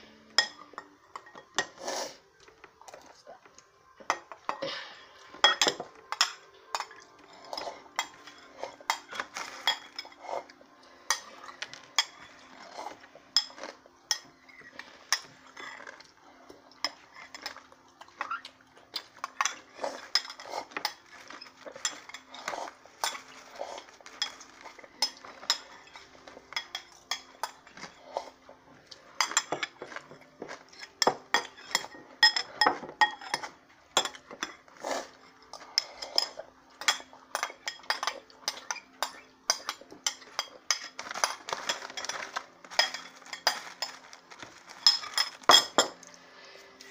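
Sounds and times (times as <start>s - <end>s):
metal spoon clinking against bowl: 29.2s - 34.6s, 35.5s - 46.1s.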